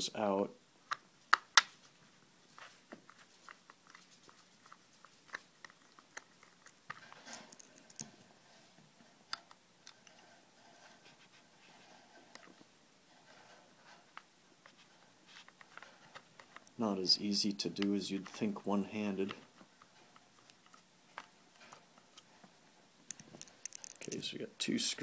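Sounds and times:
screwdriver clicking and scraping: 0:04.6 - 0:08.1, 0:23.1 - 0:24.2.

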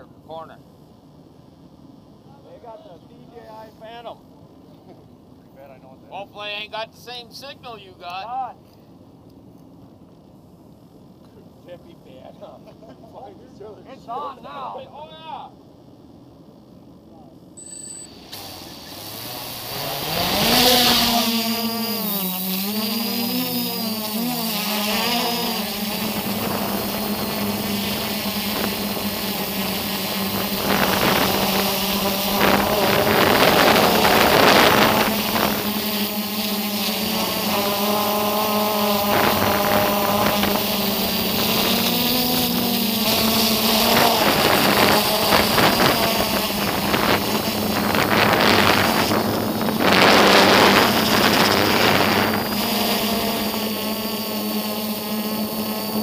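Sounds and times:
drone propellers humming: 0:15.8 - 0:56.0
wind rushing over microphone: 0:25.9 - 0:35.8, 0:37.2 - 0:41.8, 0:43.0 - 0:53.5.

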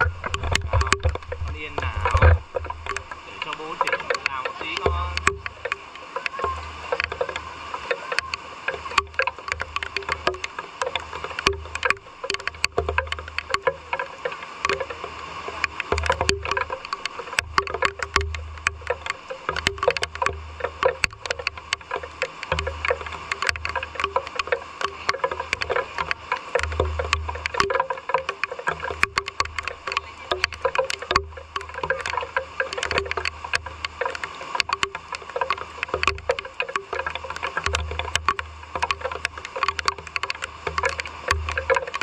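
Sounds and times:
low rumbles: 0:00.0 - 0:07.8
drips tapping and splashing: 0:00.0 - 0:42.0
rain falling: 0:00.0 - 0:42.0.

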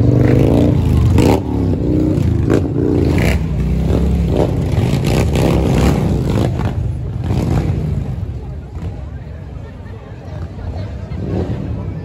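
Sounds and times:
motorcycle engines revving: 0:00.0 - 0:12.0.

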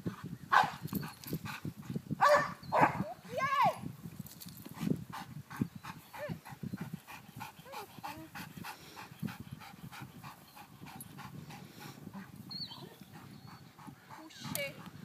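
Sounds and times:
dog panting: 0:04.8 - 0:15.0.

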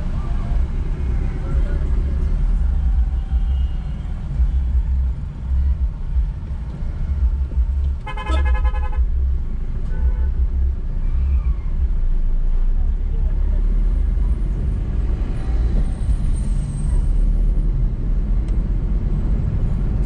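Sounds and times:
car engine and road rumble: 0:00.0 - 0:20.0
vehicle horn honking: 0:08.0 - 0:09.0.

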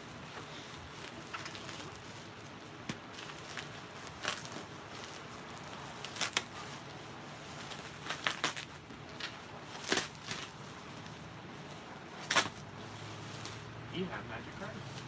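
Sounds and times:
plastic bags crinkling: 0:00.0 - 0:13.7.

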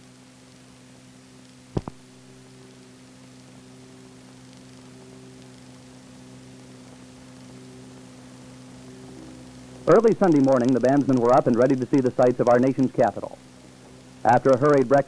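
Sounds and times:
electrical hum: 0:00.0 - 0:15.0
sharp click: 0:01.8 - 0:02.0.

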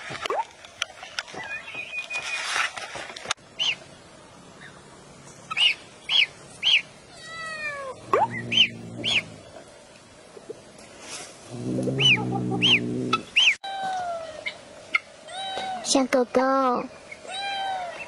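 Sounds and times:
duckling peeping: 0:08.0 - 0:09.4, 0:11.5 - 0:13.6.

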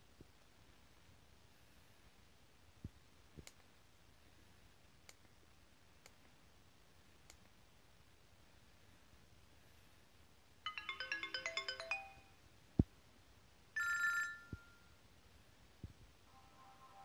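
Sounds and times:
phone melodic notes: 0:10.7 - 0:12.3
bright phone chime: 0:10.7 - 0:12.4, 0:13.8 - 0:14.9.

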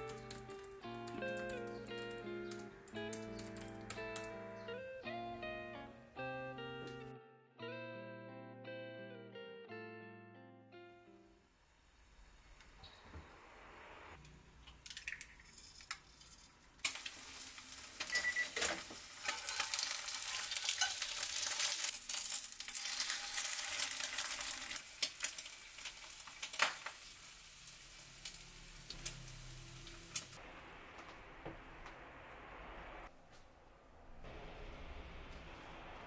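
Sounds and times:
egg sizzling in oil: 0:14.8 - 0:30.4.

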